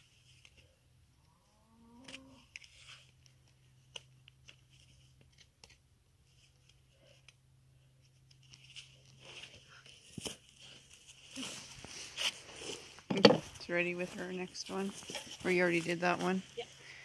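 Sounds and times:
hoof knife scraping: 0:10.6 - 0:13.5.

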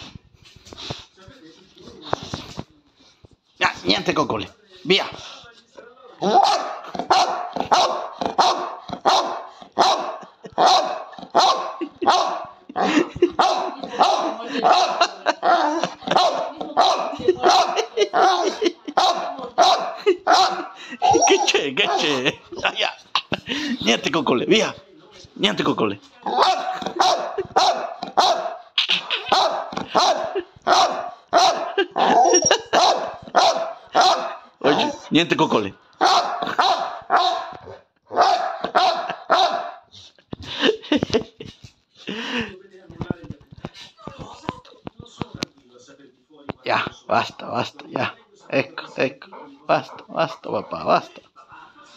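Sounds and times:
dog barking: 0:06.2 - 0:12.5, 0:13.4 - 0:15.2, 0:16.1 - 0:22.1, 0:26.3 - 0:35.0, 0:36.0 - 0:39.9.

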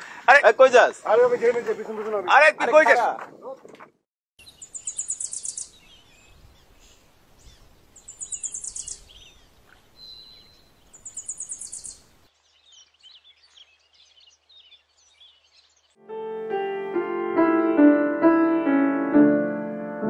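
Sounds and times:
rapid high-pitched bird trill: 0:04.4 - 0:06.0, 0:08.0 - 0:09.4, 0:10.0 - 0:12.0
birds chirping: 0:04.4 - 0:16.0.

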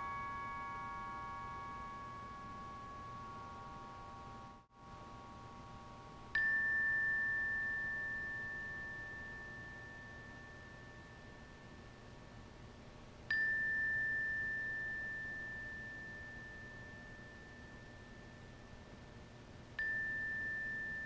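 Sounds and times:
glockenspiel chord ringing: 0:00.0 - 0:04.7
single high glockenspiel note: 0:00.0 - 0:04.7, 0:06.3 - 0:12.1, 0:13.3 - 0:19.1, 0:19.8 - 0:21.0.

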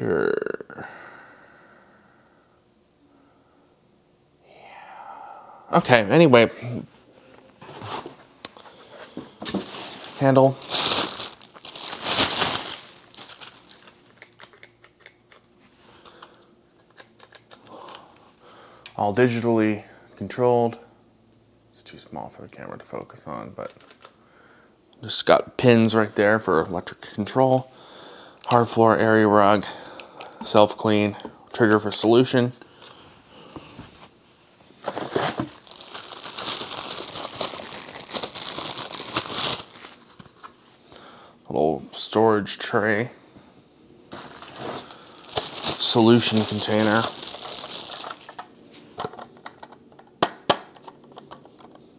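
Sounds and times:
plastic bag crinkling: 0:08.5 - 0:14.7, 0:34.8 - 0:40.5, 0:44.1 - 0:49.2
plastic clicks and rustles: 0:47.4 - 0:51.8.

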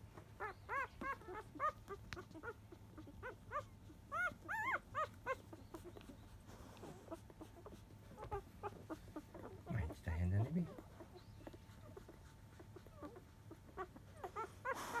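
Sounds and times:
puppies squeaking: 0:00.0 - 0:15.0.

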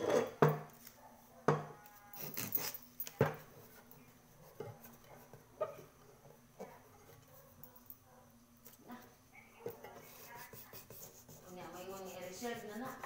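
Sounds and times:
hands rubbing tape on pot: 0:02.2 - 0:03.8, 0:09.8 - 0:13.0.

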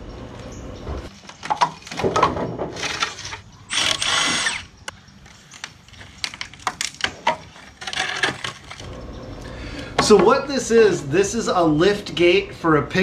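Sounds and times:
wooden boards knocking and clattering: 0:01.3 - 0:03.4, 0:06.2 - 0:08.8, 0:10.0 - 0:10.4.

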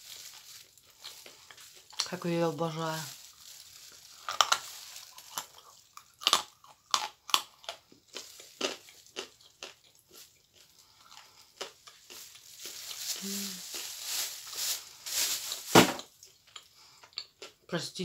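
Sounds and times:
chewing crunchy clay: 0:04.0 - 0:13.0.

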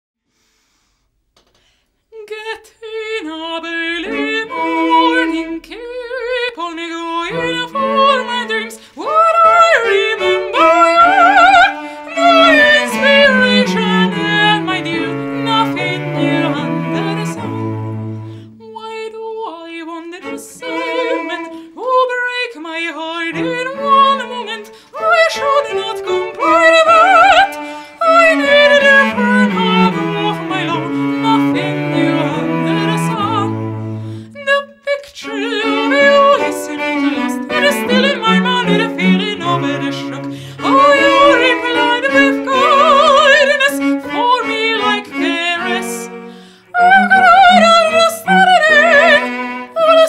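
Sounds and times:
cello: 0:03.1 - 0:50.0
piano: 0:03.1 - 0:50.0.

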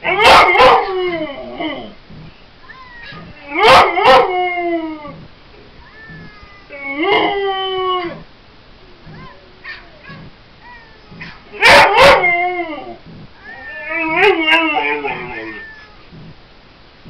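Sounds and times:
dog howling: 0:02.9 - 0:05.2, 0:05.9 - 0:08.3, 0:09.1 - 0:15.9.

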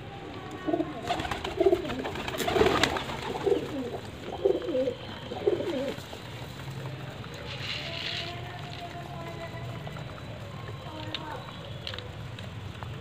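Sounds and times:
pigeons cooing: 0:00.6 - 0:07.9.

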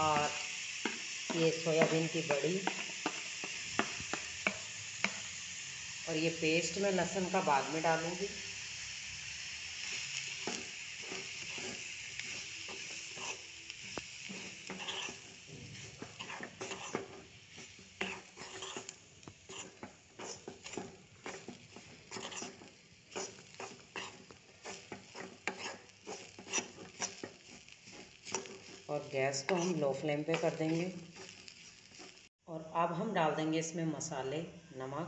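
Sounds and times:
spatula scraping frying pan: 0:00.0 - 0:05.7, 0:09.4 - 0:32.3
frying sizzle: 0:00.0 - 0:32.4.

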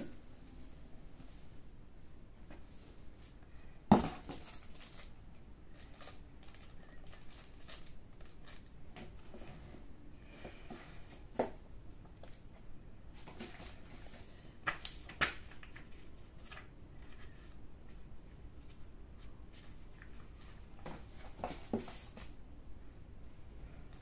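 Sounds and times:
plastic bags crinkling: 0:03.9 - 0:08.8.

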